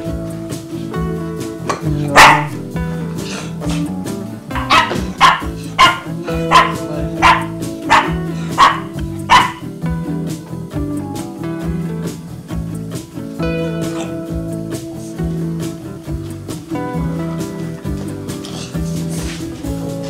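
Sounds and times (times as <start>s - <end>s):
guitar music: 0.0s - 20.0s
small dog barking: 2.0s - 2.8s, 4.5s - 9.7s.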